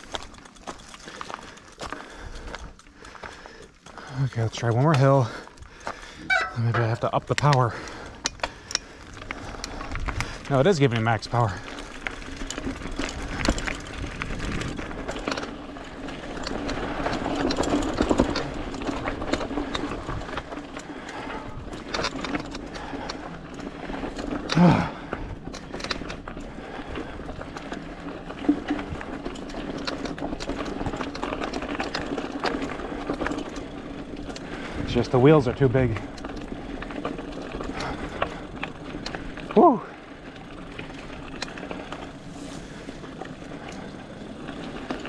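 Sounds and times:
bike rattling on rough trail: 0:00.0 - 0:45.0
electric bike motor whining: 0:29.0 - 0:45.0.

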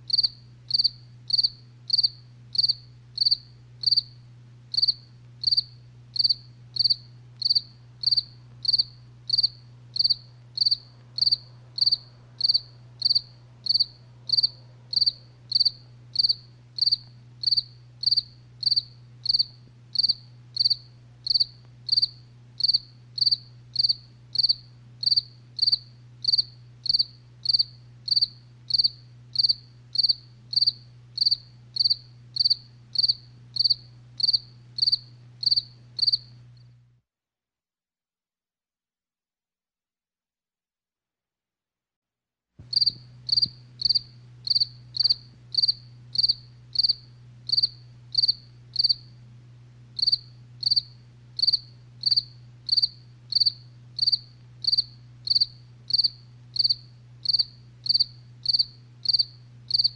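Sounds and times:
faint low hum: 0:00.0 - 0:37.0, 0:42.6 - 0:59.9
cricket chirping: 0:00.1 - 0:36.4, 0:42.7 - 0:49.2, 0:50.0 - 0:59.9.

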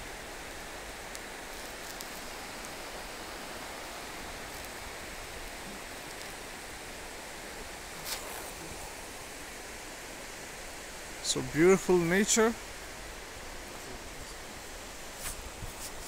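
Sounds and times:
river water rushing: 0:00.0 - 0:16.0
brief rustle: 0:08.0 - 0:08.6, 0:15.2 - 0:16.0.

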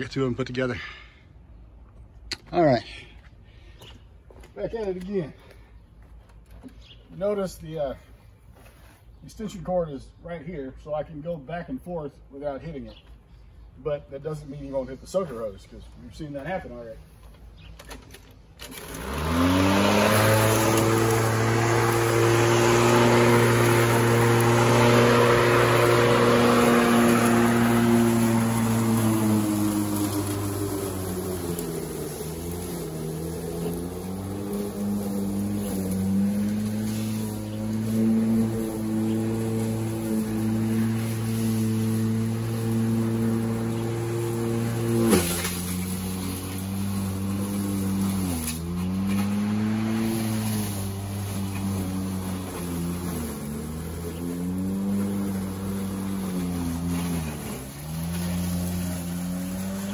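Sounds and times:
electric lawnmower running: 0:17.8 - 0:59.9.

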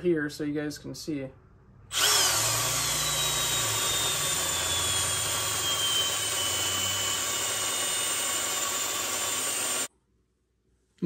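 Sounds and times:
cordless drill whining: 0:01.9 - 0:09.9.

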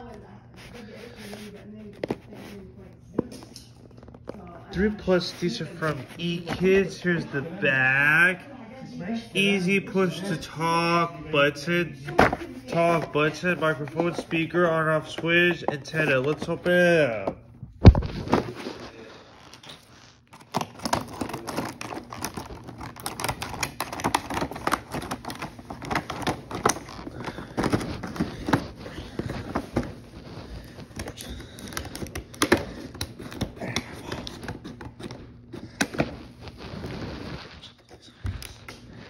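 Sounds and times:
plastic packaging crackling: 0:17.8 - 0:37.7
scissors snipping plastic packaging: 0:19.5 - 0:29.9, 0:30.8 - 0:36.2.

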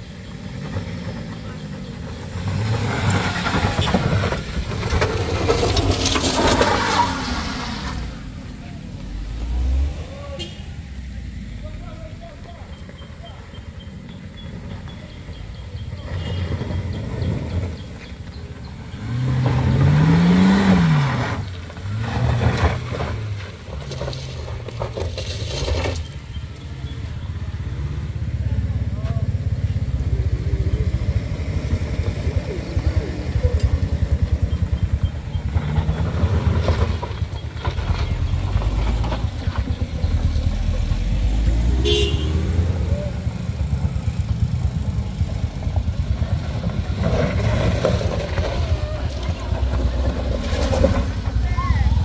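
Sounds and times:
car engine under load: 0:00.0 - 0:52.0
tyres crunching over stones: 0:00.4 - 0:09.7, 0:21.2 - 0:27.4, 0:34.8 - 0:41.8, 0:45.2 - 0:52.0.

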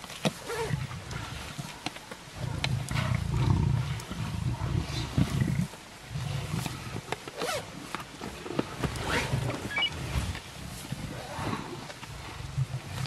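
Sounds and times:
lions growling low: 0:00.4 - 0:01.8, 0:02.4 - 0:07.7, 0:11.0 - 0:13.0.

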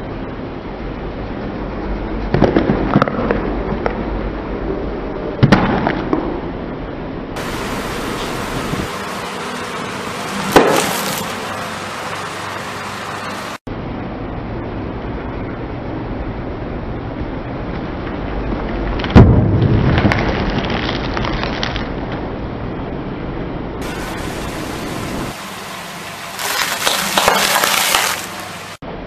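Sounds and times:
loud crack: 0:08.1 - 0:13.2, 0:19.0 - 0:22.0, 0:26.3 - 0:28.6
carrots crunching under tyre: 0:19.9 - 0:22.0, 0:26.3 - 0:28.4.

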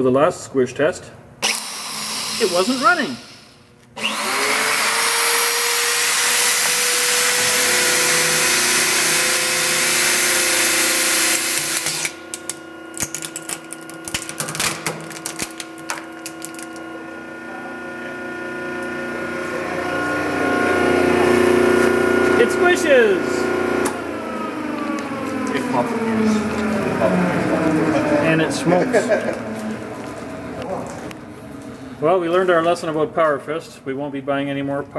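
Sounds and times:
angle grinder whining: 0:01.4 - 0:12.5, 0:15.5 - 0:30.6
grinder cracking and crunching: 0:10.4 - 0:16.9.

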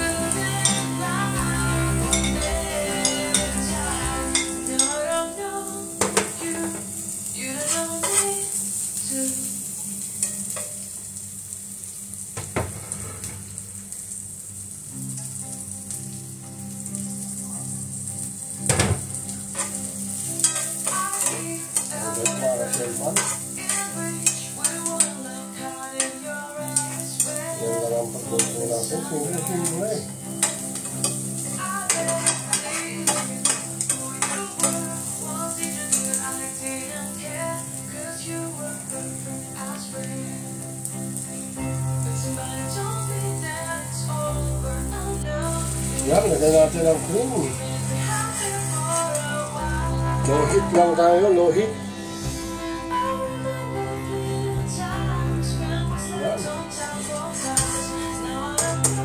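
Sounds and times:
background music: 0:00.0 - 0:10.7, 0:14.6 - 0:59.0
food sizzling in a pan: 0:00.0 - 0:59.0
spatula scraping a pan: 0:19.5 - 0:25.2, 0:31.9 - 0:34.9, 0:57.0 - 0:58.0.

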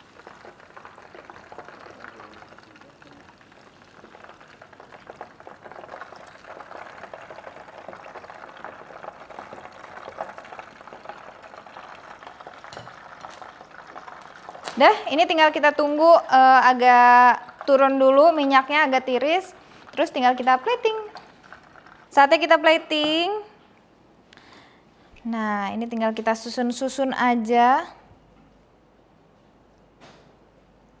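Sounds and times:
hot oil sizzling and crackling: 0:00.0 - 0:22.4.

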